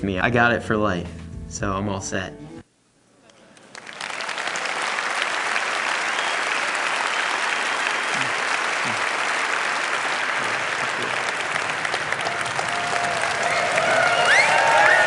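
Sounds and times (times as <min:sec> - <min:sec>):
large audience applauding: 0:03.3 - 0:15.0.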